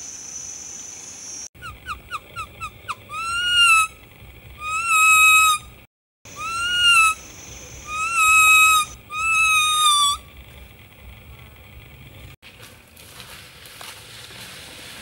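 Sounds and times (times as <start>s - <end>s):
leaf whistle notes: 2.9s - 4.0s, 4.6s - 5.7s, 6.3s - 10.3s.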